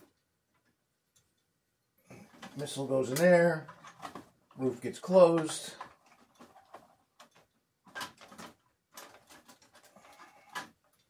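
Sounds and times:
clicks and scrapes on plastic: 5.3 - 11.0.

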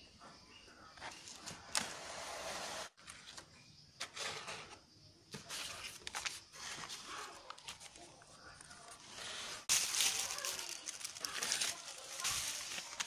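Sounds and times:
paper rustling: 5.3 - 13.0.

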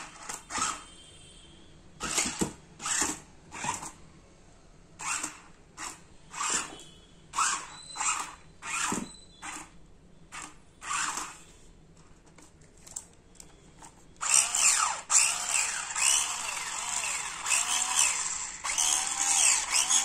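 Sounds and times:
toy car electric motors whirring: 0.0 - 1.0, 2.0 - 4.0, 5.0 - 11.6, 14.2 - 20.0.

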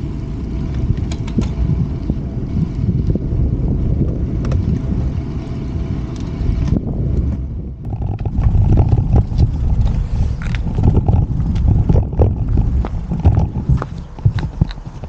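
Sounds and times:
tyre and road noise: 0.0 - 15.0
wind buffeting microphone: 0.0 - 15.0
clicks and rattles: 0.7 - 1.6, 7.8 - 15.0.

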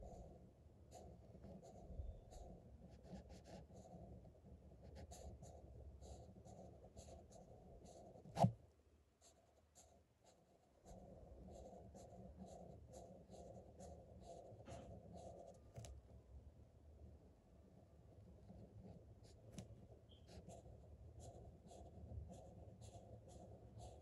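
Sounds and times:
marker scratching on paper: 0.9 - 4.1, 4.8 - 8.5, 9.2 - 15.9, 18.5 - 24.0.

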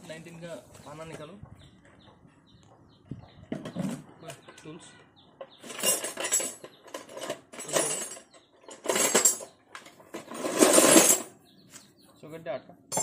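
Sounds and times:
metal tools clinking and rattling: 5.4 - 11.4.

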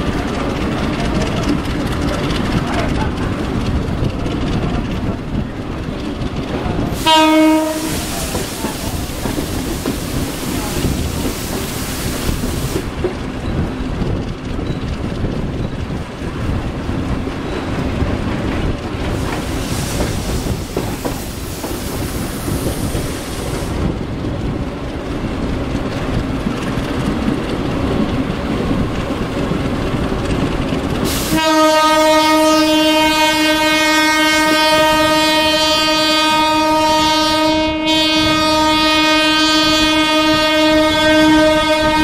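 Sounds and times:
moving train rumble: 0.0 - 42.0
locomotive horn blast: 7.0 - 8.4, 31.1 - 42.0.

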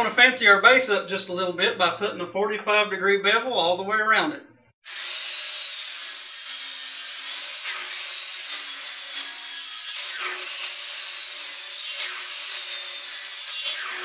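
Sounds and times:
miter saw cutting wood: 4.8 - 14.0.

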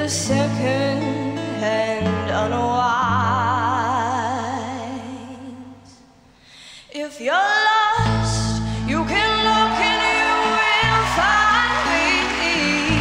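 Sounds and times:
woman singing with vibrato: 0.0 - 6.0, 6.7 - 13.0
low bass: 8.0 - 9.8.

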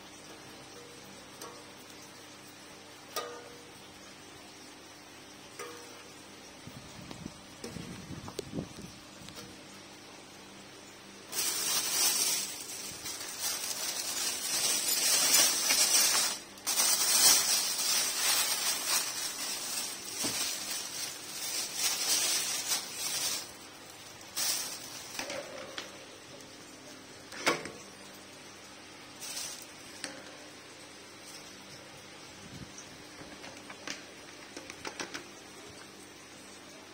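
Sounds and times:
scraping and rustling handling: 11.3 - 23.6, 24.3 - 25.9, 29.2 - 30.2.

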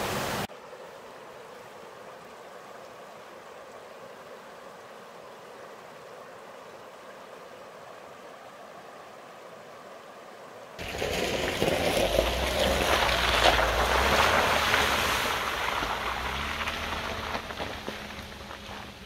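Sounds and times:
river rushing: 0.0 - 19.0
car engine passing: 10.8 - 19.0
tyres crunching on gravel: 10.8 - 19.0
tyres splashing through puddle: 10.8 - 19.0.

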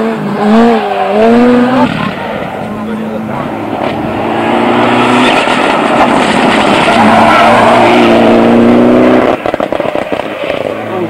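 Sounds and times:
rally car engine at full throttle: 0.0 - 11.0
crackling exhaust pops: 9.3 - 10.7.

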